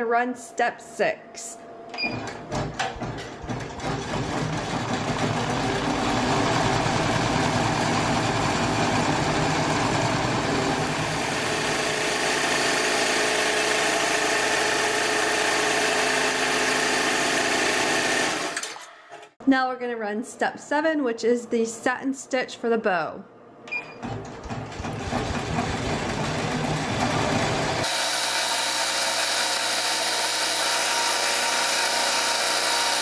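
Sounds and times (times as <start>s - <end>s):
embroidery machine stitching: 3.0s - 18.9s, 24.0s - 33.0s.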